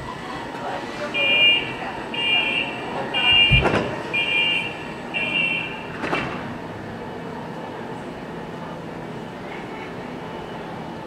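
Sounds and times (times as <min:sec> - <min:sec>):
train running noise: 0:00.0 - 0:11.0
door-closing warning beeps: 0:01.2 - 0:06.0
doors shutting with heavy thud: 0:03.2 - 0:04.2.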